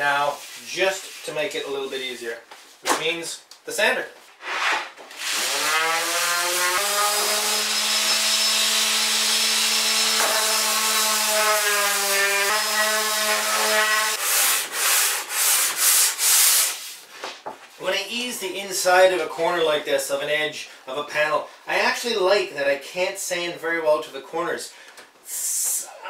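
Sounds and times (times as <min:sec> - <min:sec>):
hand sanding strokes: 0:00.3 - 0:01.5, 0:10.3 - 0:17.1.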